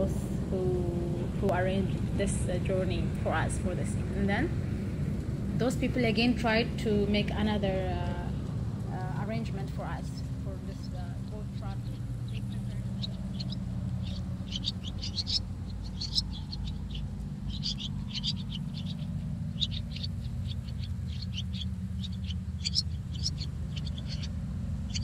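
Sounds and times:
steady low hum: 0.0s - 25.0s
high chirping: 10.7s - 25.0s.

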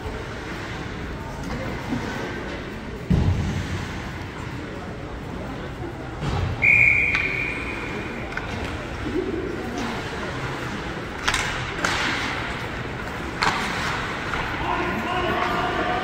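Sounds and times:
referee's whistle blast: 6.6s - 8.0s
hockey sticks and puck clacking: 6.9s - 9.0s, 9.7s - 16.0s.

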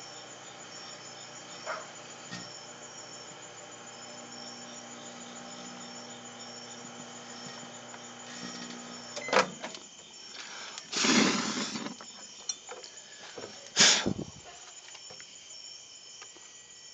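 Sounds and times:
microwave oven humming: 0.0s - 10.1s.

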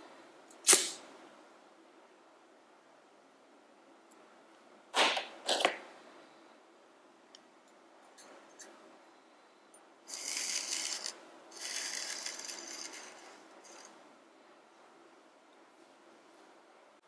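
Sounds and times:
ceramic burner rasping on surface: 10.1s - 13.9s
tin scraping into ceramic: 10.1s - 13.9s.

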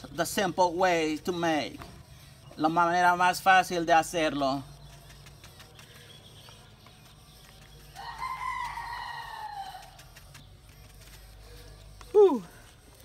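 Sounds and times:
rooster crowing: 8.0s - 10.0s.

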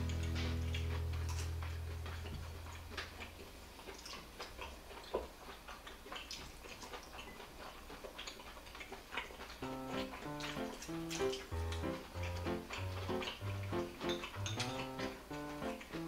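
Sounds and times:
soft eating sounds: 0.0s - 16.0s
chopsticks clicking on a dish: 10.0s - 16.0s.

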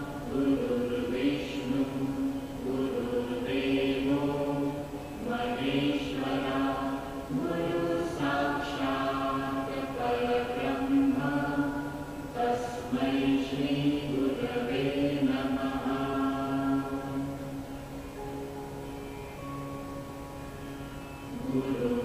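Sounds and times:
voices chanting: 0.0s - 17.6s, 21.2s - 22.0s.

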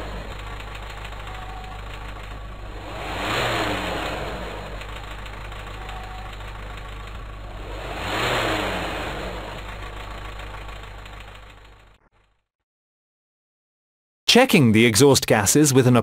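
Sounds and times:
diesel engine idling and revving: 0.0s - 12.0s.

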